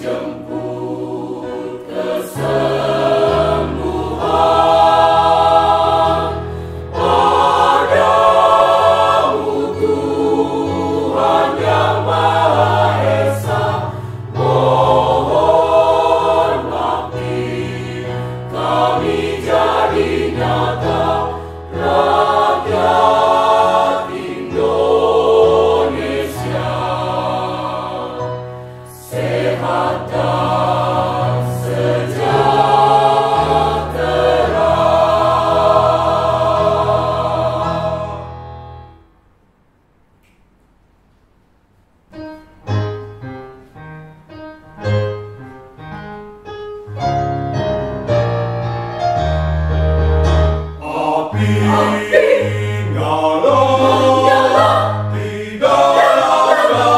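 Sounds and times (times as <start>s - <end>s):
mixed choir singing: 0.0s - 38.7s, 50.8s - 56.9s.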